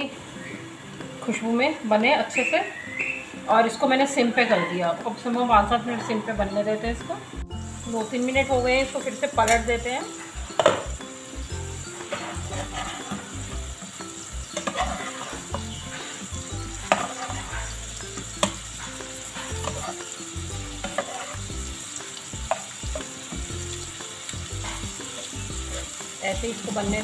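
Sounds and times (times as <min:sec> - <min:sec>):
chicken sizzling in frying pan: 0:05.3 - 0:27.0
spatula tapping pan: 0:10.5 - 0:11.0, 0:11.9 - 0:13.3, 0:14.5 - 0:16.2, 0:16.8 - 0:26.2
spatula scraping pan: 0:11.9 - 0:13.8, 0:14.4 - 0:21.5, 0:24.6 - 0:26.0.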